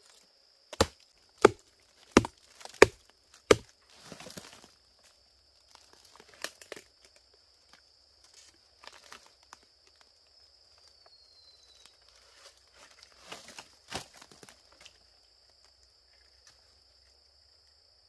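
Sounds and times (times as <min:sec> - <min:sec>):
high insect drone: 0:00.0 - 0:18.0
dry palm fibre crackling and snapping: 0:00.7 - 0:04.7, 0:05.7 - 0:10.1, 0:11.8 - 0:15.0.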